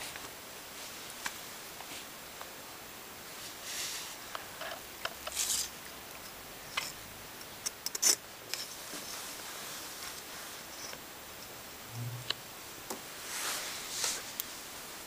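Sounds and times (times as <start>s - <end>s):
soft rustling: 8.6s - 11.0s, 13.2s - 15.0s.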